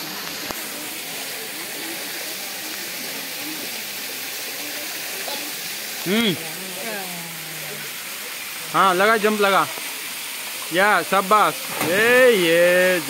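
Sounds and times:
faint distant voices: 0.0s - 13.0s
rushing water: 0.0s - 13.0s.

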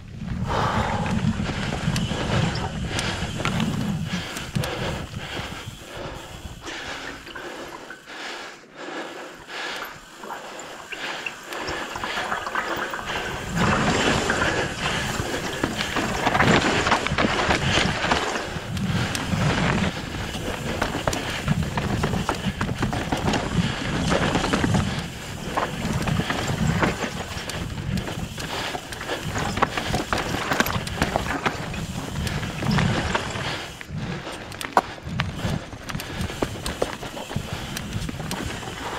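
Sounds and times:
wind rushing on microphone: 0.0s - 6.7s, 13.1s - 38.9s
bike tyres rattling on rock: 0.0s - 8.1s, 9.3s - 38.9s.

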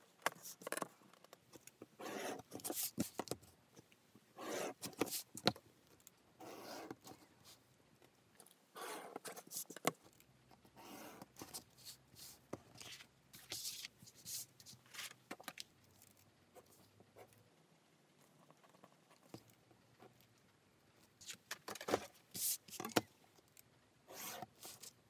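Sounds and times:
pen scratching: 2.0s - 3.4s, 4.4s - 5.5s, 6.4s - 7.1s, 8.8s - 9.9s, 10.7s - 15.0s, 24.1s - 25.0s.

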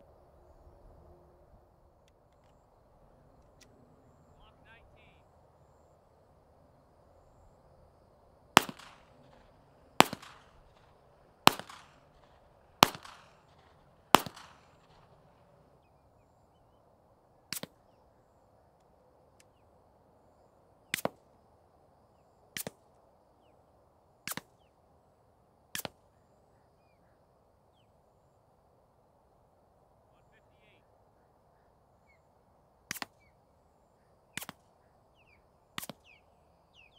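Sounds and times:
quiet sharp cracks: 3.3s - 3.8s, 8.5s - 15.6s, 17.5s - 18.0s, 20.9s - 21.4s, 22.5s - 23.0s, 24.2s - 24.7s, 25.7s - 26.1s, 32.8s - 33.3s, 34.3s - 36.2s
pistol shots echoing: 8.6s - 15.2s.

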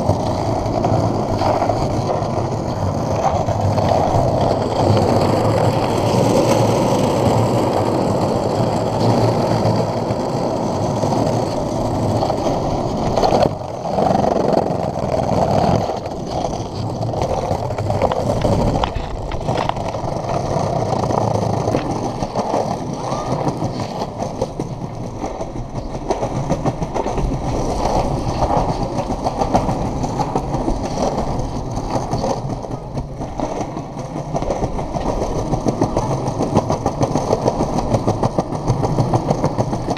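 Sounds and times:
skateboard wheels rolling over paving: 0.0s - 39.9s.

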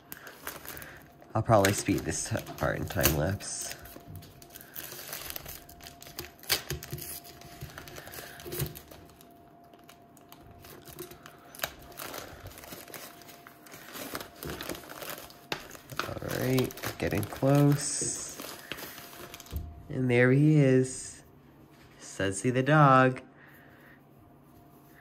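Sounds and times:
plastic packaging crinkling and tearing: 0.0s - 19.8s.

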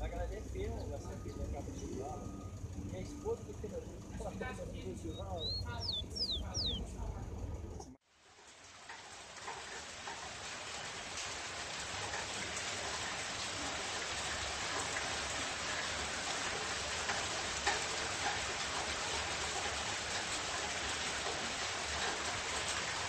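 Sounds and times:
rain-like hiss: 8.0s - 23.0s.

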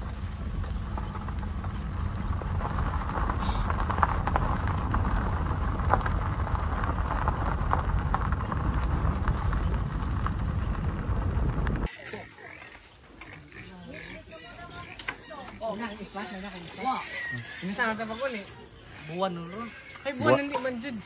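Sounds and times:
vehicle rumbling on gravel: 0.0s - 11.9s.

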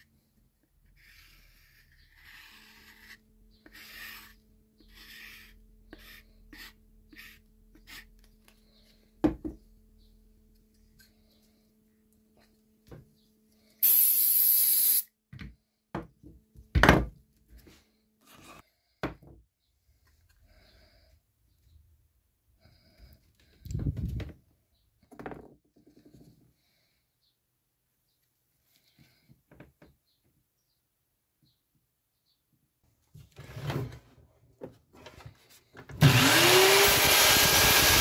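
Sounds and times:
aerosol spray hiss: 13.8s - 15.1s.

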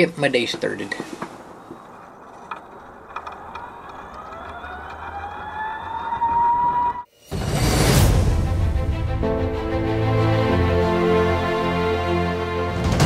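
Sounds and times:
electric scooter motor whining: 1.4s - 7.1s
loud background music: 7.3s - 13.0s.

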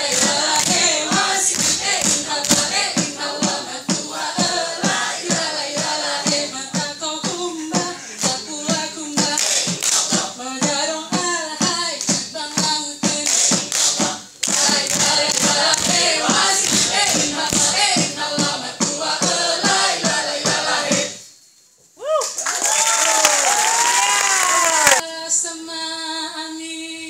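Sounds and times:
people chanting in unison: 0.0s - 10.4s, 13.5s - 21.2s
clapping and body slapping: 0.1s - 3.1s, 9.2s - 10.2s, 13.2s - 18.1s.

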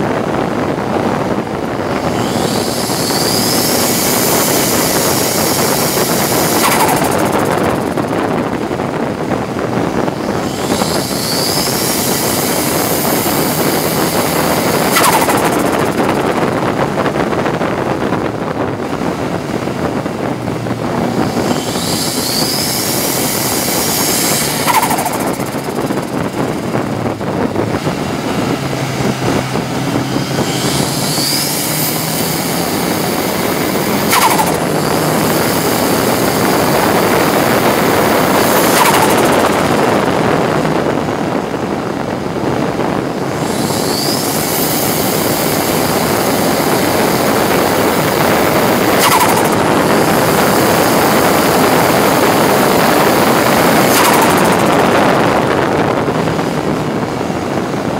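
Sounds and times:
race car engine revving: 0.0s - 57.9s
wind and road noise: 0.0s - 57.9s.

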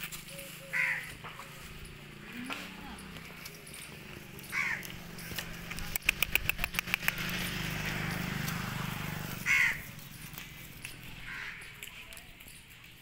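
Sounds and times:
engine running: 0.0s - 13.0s
sharp clicks: 4.8s - 7.5s.

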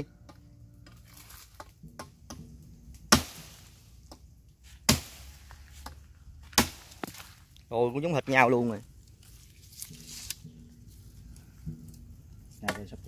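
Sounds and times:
blade chopping firewood: 0.2s - 7.5s, 11.6s - 13.0s.

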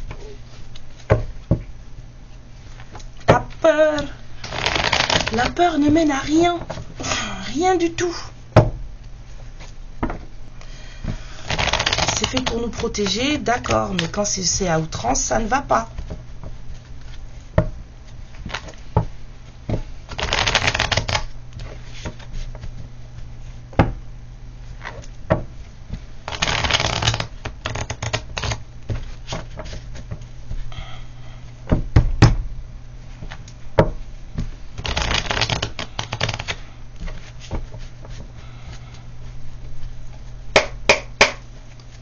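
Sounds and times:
cards being shuffled: 4.0s - 6.8s, 11.4s - 14.2s, 18.1s - 18.8s, 20.1s - 22.9s, 25.9s - 30.2s, 34.8s - 38.9s.

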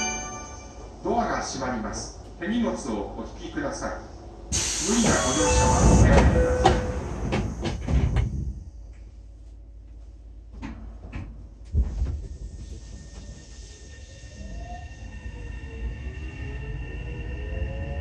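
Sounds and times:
hissing air of doors: 4.5s - 6.0s.

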